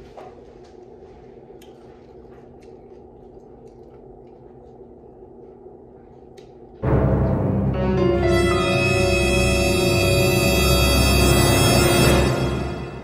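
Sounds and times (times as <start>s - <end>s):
soft squishes of food: 0.0s - 6.8s
low room hum: 0.0s - 13.0s.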